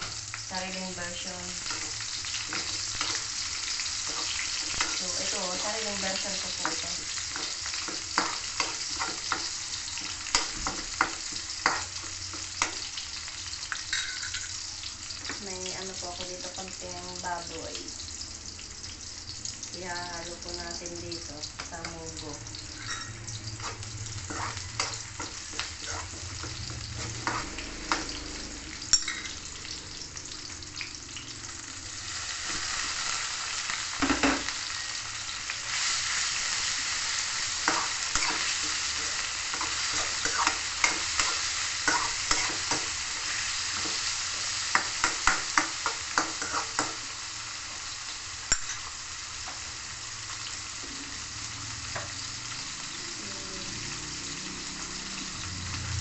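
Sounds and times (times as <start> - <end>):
meat sizzling in a wok: 0.0 - 56.0
stirring clicks and scrapes on wok: 23.6 - 28.1.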